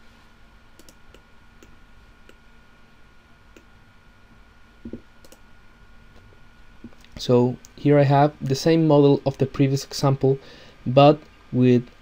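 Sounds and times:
faint steady hum: 0.0 - 12.0
computer mouse clicks: 0.8 - 2.4, 4.8 - 5.4.

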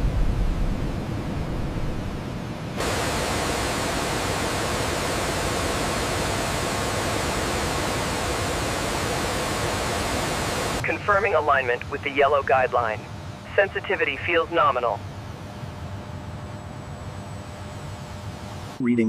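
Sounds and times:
jet engine rushing noise: 0.0 - 12.9.

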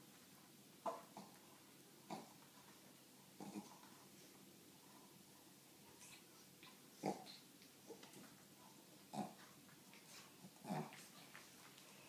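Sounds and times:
dog grunts: 2.1 - 2.4, 3.4 - 3.8, 7.0 - 7.4, 9.1 - 9.4, 10.5 - 11.0
dogs play-wrestling: 5.0 - 12.0.

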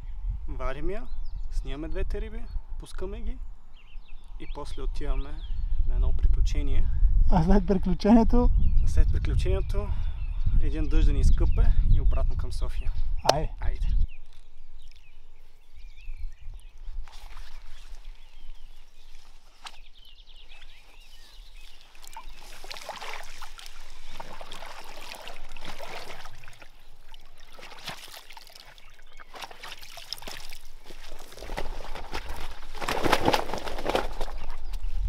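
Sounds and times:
rustling: 16.7 - 35.0
water splashing and trickling: 20.5 - 34.6.

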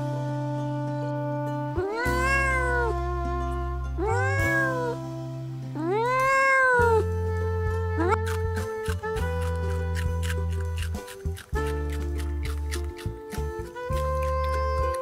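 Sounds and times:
background music: 0.0 - 15.0
cat meowing: 1.8 - 3.2, 4.0 - 5.0, 5.8 - 7.2, 7.9 - 8.5, 13.9 - 15.0.

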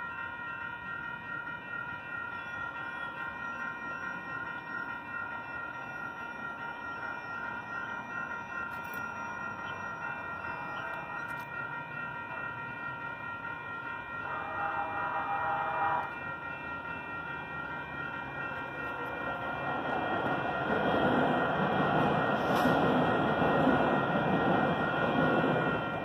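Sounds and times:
level crossing warning bells: 0.0 - 26.0
light rail train passing: 0.0 - 26.0
train horn blast: 14.2 - 16.2.

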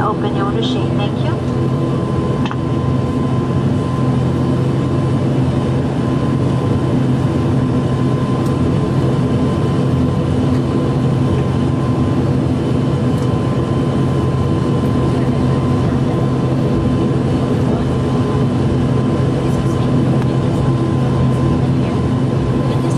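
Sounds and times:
constant engine whine: 0.0 - 22.9
turboprop engine drone: 0.0 - 22.9.

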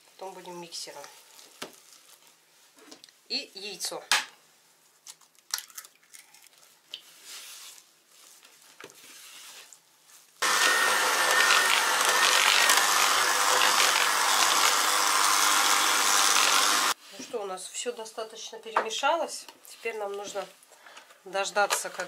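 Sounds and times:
electric hand mixer running: 10.4 - 17.0.

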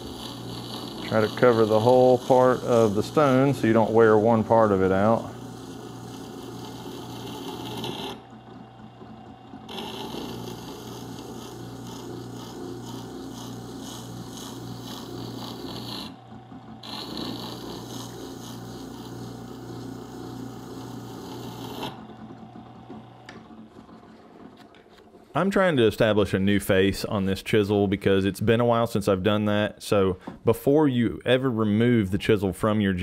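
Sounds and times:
chisel grinding on stone: 0.0 - 4.0, 5.4 - 8.2, 9.7 - 16.2, 16.8 - 19.4, 20.6 - 22.0
sharpener motor humming: 0.0 - 23.5.

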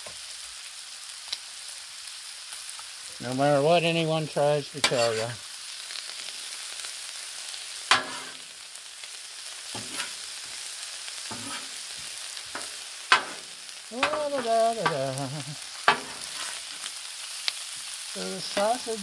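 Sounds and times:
food sizzling on griddle: 0.0 - 19.0
metal spatula scraping and clacking: 4.8 - 5.4, 7.9 - 8.4, 9.7 - 10.2, 11.2 - 11.9, 12.5 - 15.0, 15.8 - 16.9
person humming: 14.0 - 15.6.

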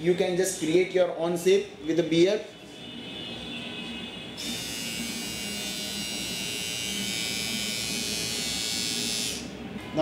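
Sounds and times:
beard trimmer buzzing: 4.4 - 9.5.

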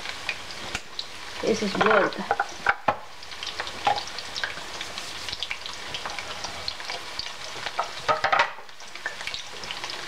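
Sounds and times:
food sizzling in hot oil: 0.0 - 10.0.

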